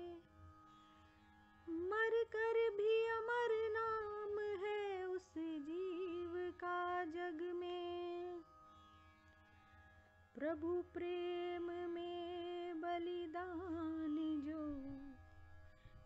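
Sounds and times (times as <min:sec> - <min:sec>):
woman singing wordless melody: 0:00.0 - 0:00.3, 0:01.6 - 0:08.5, 0:10.4 - 0:15.2.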